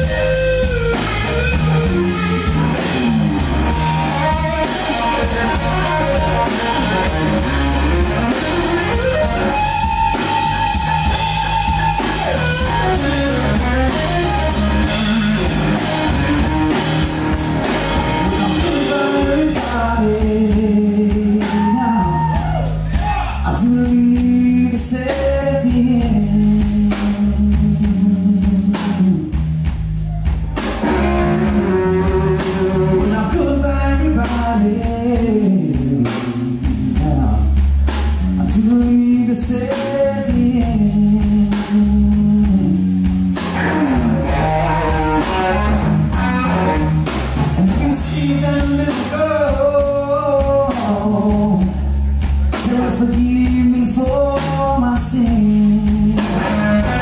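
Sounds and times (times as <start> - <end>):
electric guitar lead: 0.0 - 20.7, 30.1 - 34.4, 43.3 - 51.8, 55.5 - 57.0
drum kit: 0.0 - 57.0
electric bass: 0.0 - 57.0
man singing: 18.2 - 29.3, 31.7 - 42.9, 47.6 - 57.0.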